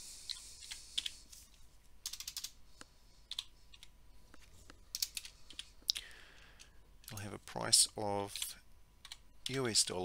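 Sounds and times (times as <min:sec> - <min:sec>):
computer keyboard keys clicking: 0:02.0 - 0:02.6, 0:03.3 - 0:03.9, 0:04.9 - 0:05.7, 0:08.4 - 0:09.8.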